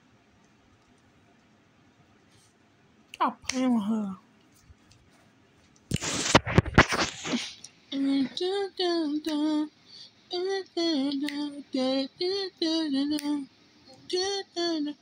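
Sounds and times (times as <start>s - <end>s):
woman singing or humming: 3.2s - 4.2s, 7.5s - 15.0s.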